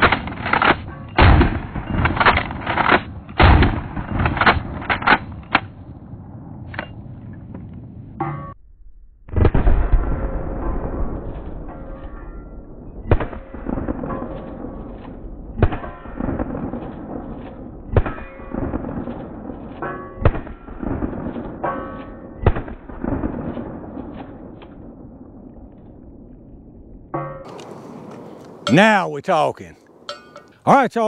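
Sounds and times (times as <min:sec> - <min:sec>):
shotgun shots: 0:00.0 - 0:05.8, 0:13.0 - 0:25.2.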